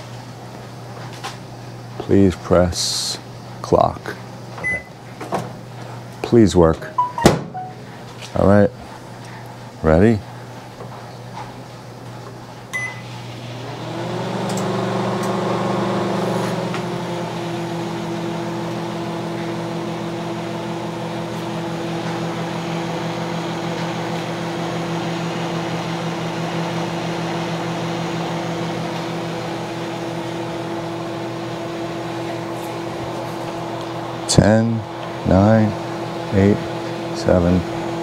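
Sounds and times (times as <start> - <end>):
microwave oven humming: 0.0 - 38.0
microwave keypad beep: 4.6 - 4.9, 6.9 - 7.8, 12.8 - 13.1.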